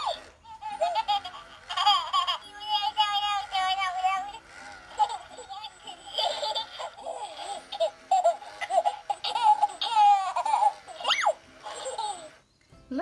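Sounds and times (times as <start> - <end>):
doll baby laughter and babble: 0.0 - 12.4
doll squeal: 9.7 - 12.4.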